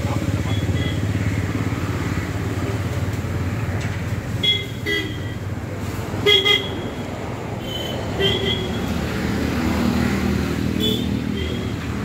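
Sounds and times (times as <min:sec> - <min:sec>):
traffic engine rumble: 0:00.0 - 0:12.0
vehicle horns honking: 0:04.4 - 0:05.4, 0:06.2 - 0:07.0, 0:07.6 - 0:08.9, 0:10.8 - 0:11.8.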